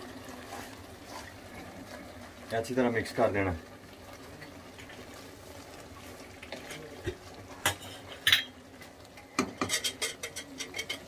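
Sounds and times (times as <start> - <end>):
wooden spatula stirring in a pot: 0.0 - 11.0
spatula scraping and knocking pot: 7.6 - 8.5, 9.4 - 11.0.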